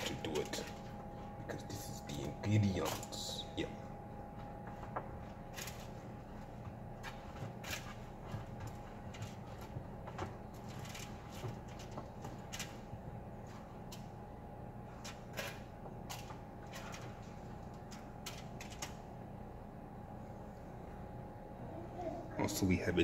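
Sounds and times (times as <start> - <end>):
aluminium foil crinkling: 5.5 - 6.2, 15.0 - 19.0.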